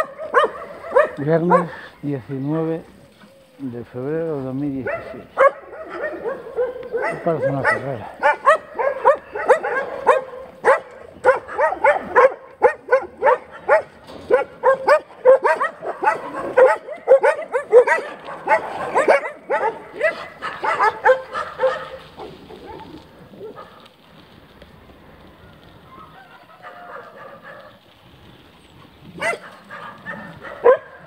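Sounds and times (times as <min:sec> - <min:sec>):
dogs barking: 0:00.0 - 0:02.0, 0:04.6 - 0:23.9, 0:25.9 - 0:27.9, 0:29.1 - 0:31.0.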